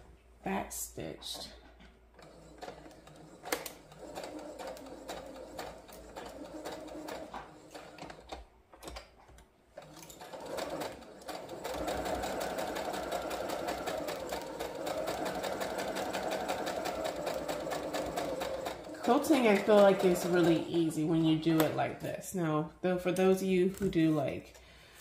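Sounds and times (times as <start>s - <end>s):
sewing machine stitching: 2.2s - 9.0s, 9.8s - 21.8s.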